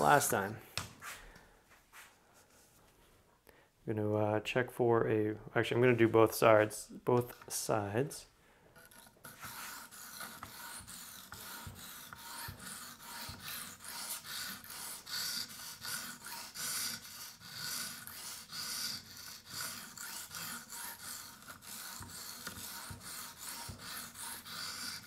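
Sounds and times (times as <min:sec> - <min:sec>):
sharpening stone scraping knife blade: 0:08.8 - 0:25.0.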